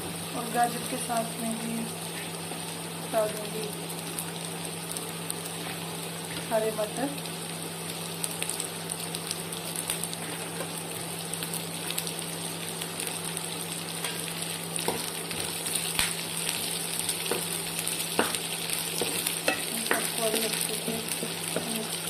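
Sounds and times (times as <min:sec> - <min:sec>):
vegetables sizzling in oil: 0:00.0 - 0:22.0.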